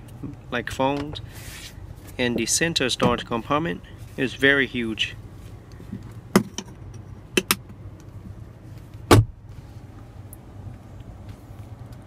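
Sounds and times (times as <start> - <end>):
steady low hum: 0.0 - 12.0
sharp clicks and knocks: 5.9 - 8.2.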